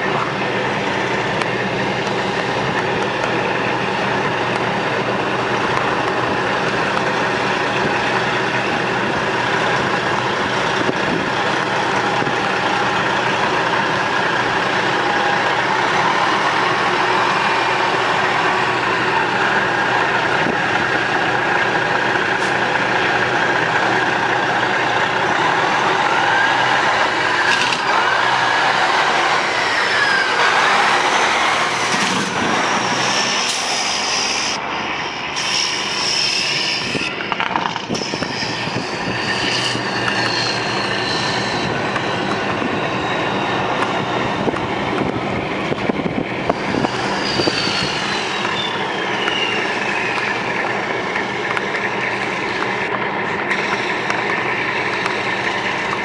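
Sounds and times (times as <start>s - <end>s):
diesel truck engine idling: 0.0s - 36.2s, 48.4s - 56.0s.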